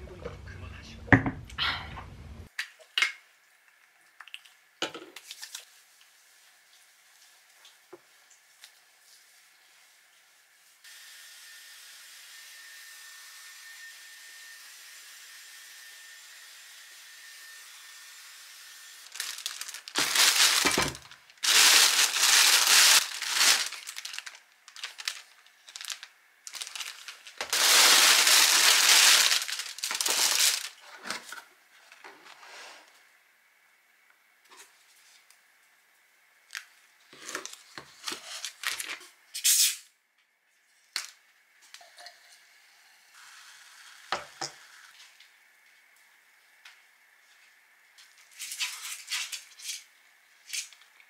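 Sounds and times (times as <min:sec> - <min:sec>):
plastic bag rustling and crinkling: 0:19.0 - 0:32.5, 0:36.5 - 0:39.0.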